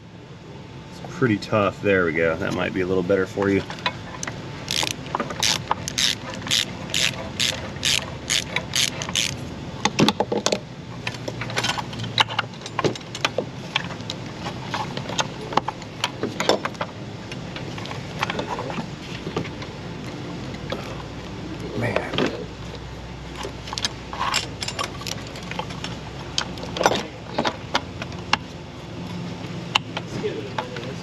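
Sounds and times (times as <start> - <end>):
hand ratchet clicking: 4.7 - 9.4.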